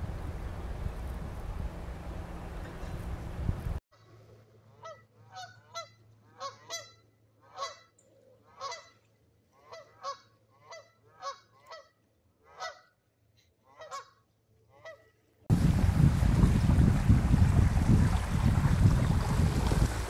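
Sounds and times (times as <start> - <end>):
geese honking: 4.6 - 9.0, 9.6 - 12.9, 13.7 - 15.1.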